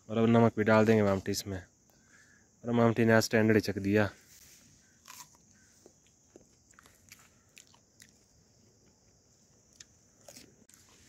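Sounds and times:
person chewing crunchy cucumber: 5.0s - 11.0s.

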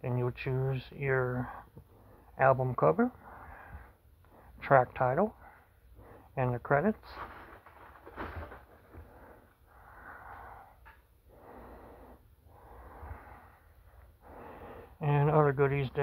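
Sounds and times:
man breathing: 1.4s - 2.4s, 3.1s - 4.6s, 5.3s - 6.4s, 8.0s - 15.0s.

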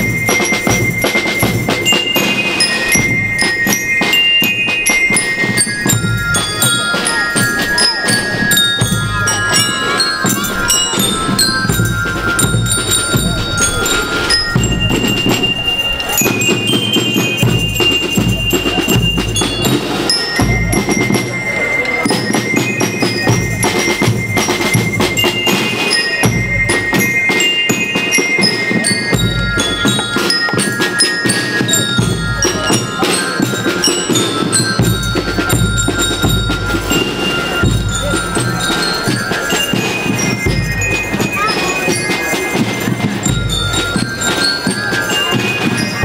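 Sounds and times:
bell lyres playing melody: 0.0s - 46.0s
snare drums: 0.0s - 46.0s
bass drums beating: 8.2s - 19.8s.

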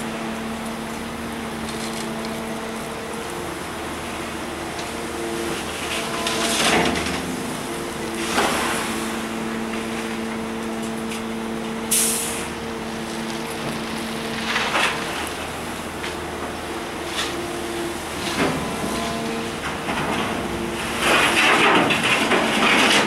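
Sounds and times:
excavator diesel engine running: 0.0s - 23.0s
gravel scraping and pouring: 4.9s - 10.5s, 12.0s - 16.0s, 17.9s - 23.0s
short sharp hiss: 11.9s - 12.5s.

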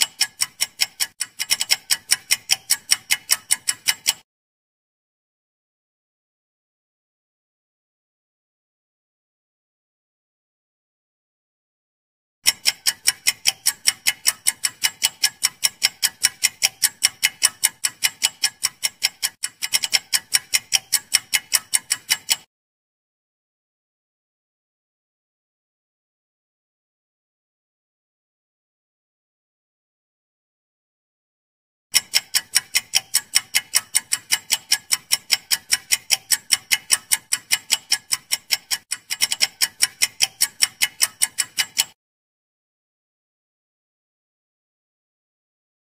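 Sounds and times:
rapid clock ticking: 0.0s - 4.3s, 12.4s - 22.5s, 31.9s - 42.0s.

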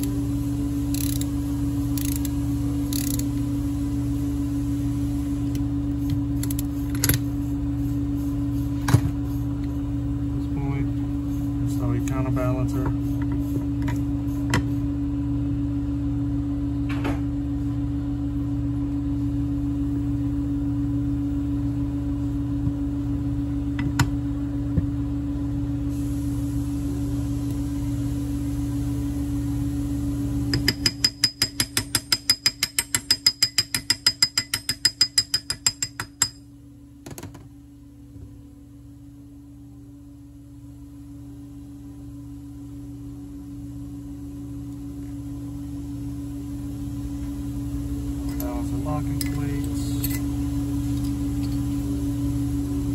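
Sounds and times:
steady low hum: 0.0s - 52.9s
ratchet-like metallic clicks: 0.9s - 1.3s, 2.0s - 2.3s, 2.9s - 3.3s.

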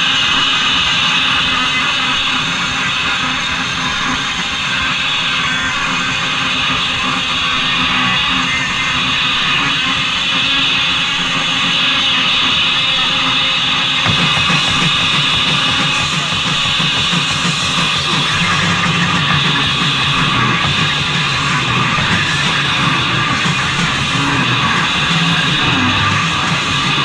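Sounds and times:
distorted electric guitar: 0.0s - 27.0s
punk band playing: 14.0s - 27.0s.

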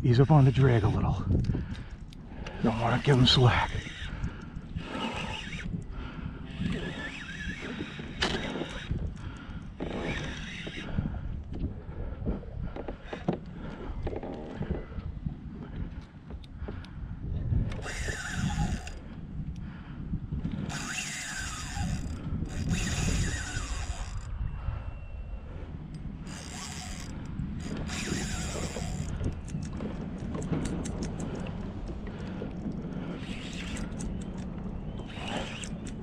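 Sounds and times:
fishing reel drag screaming: 0.1s - 1.2s, 2.5s - 5.8s, 6.4s - 9.0s, 9.8s - 11.0s, 17.8s - 19.0s, 20.7s - 24.3s, 26.2s - 29.4s, 33.0s - 34.4s, 35.0s - 36.0s
short reel clicks: 6.5s - 11.0s, 17.7s - 19.0s, 20.6s - 24.3s, 26.0s - 31.5s, 33.1s - 36.0s.

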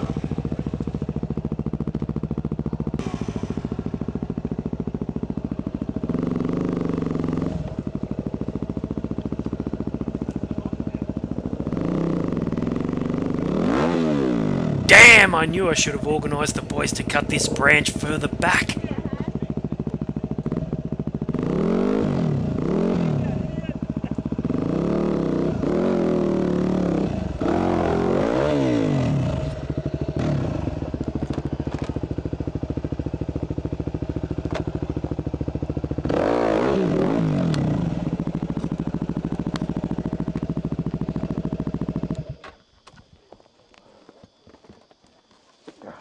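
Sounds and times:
motorcycle engine idling and revving: 0.0s - 46.0s.

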